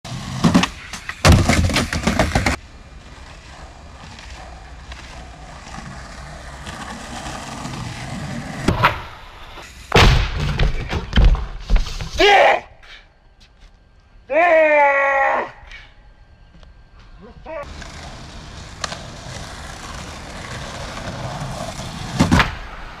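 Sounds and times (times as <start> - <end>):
board and rider crashing on planks: 0.1 - 2.6, 5.7 - 12.4, 18.7 - 22.8
skateboard wheels rolling on wood: 0.1 - 12.2, 17.6 - 23.0
skateboard landing clatter: 0.3 - 2.6, 8.6 - 12.2, 22.1 - 22.8.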